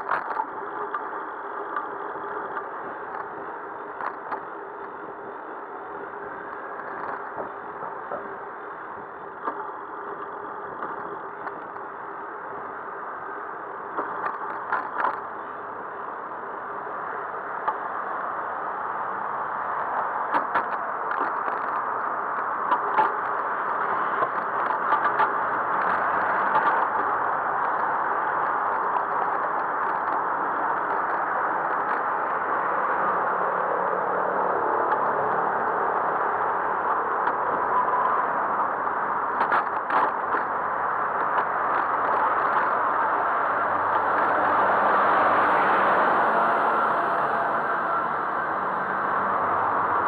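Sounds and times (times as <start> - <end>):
road traffic noise: 0.0 - 50.0.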